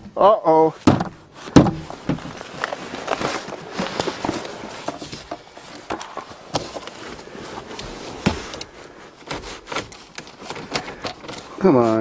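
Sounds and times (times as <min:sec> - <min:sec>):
knocks and clicks from handling: 0:07.7 - 0:11.5.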